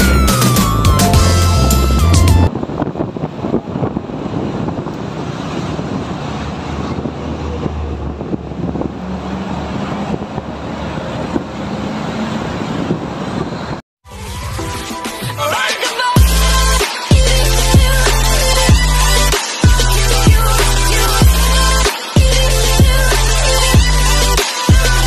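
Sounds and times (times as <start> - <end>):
passing traffic: 0.0 - 13.8
wind noise on microphone: 0.0 - 13.8.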